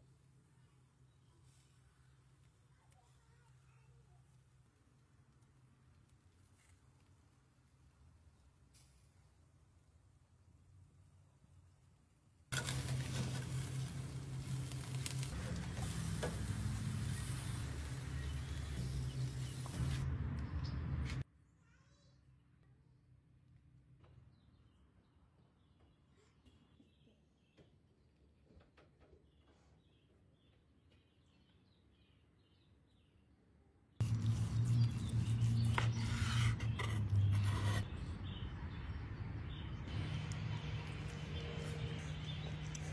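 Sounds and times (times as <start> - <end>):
steaks sizzling on a grill: 12.6 - 19.8
knife cutting and scraping board: 34.0 - 37.9.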